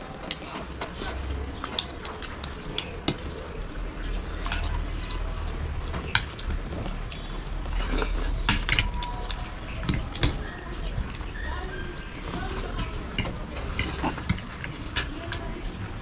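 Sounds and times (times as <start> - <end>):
wet chewing: 0.2 - 16.0
cutlery clicking on plates: 12.7 - 14.7.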